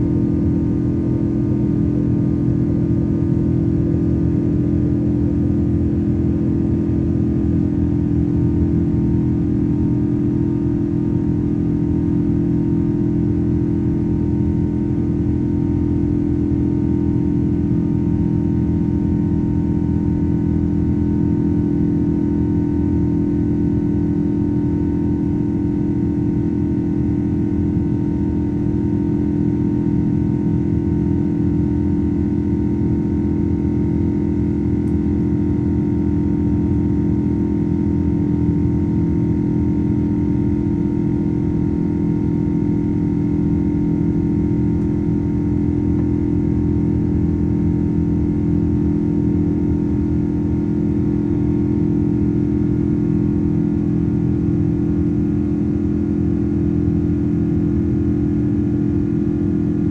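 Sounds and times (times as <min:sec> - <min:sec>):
jet engine cabin drone: 0:00.0 - 0:59.9.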